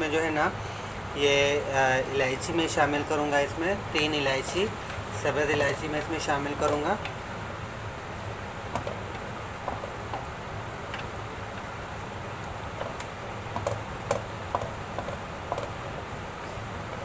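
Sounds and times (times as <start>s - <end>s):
steady cooking hiss: 0.0s - 17.0s.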